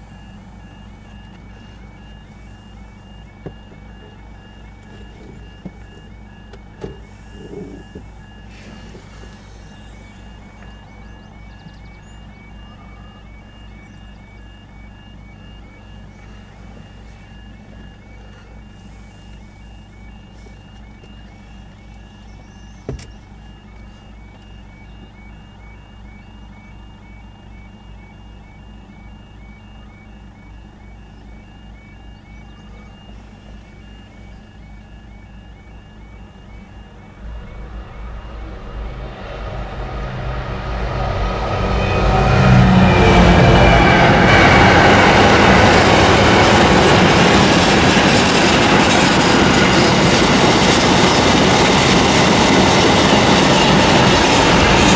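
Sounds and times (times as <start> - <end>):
low steady hum: 0.0 - 49.2
level crossing warbling alarm: 0.0 - 54.9.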